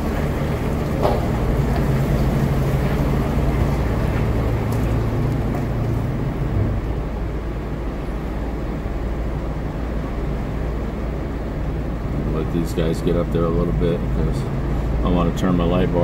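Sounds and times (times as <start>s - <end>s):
engine droning at low speed: 0.0s - 16.0s.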